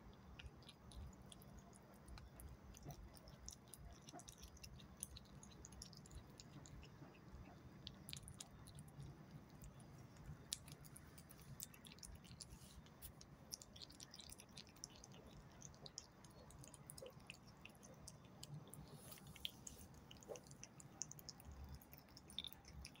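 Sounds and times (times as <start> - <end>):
cat chewing: 0.0 - 23.0.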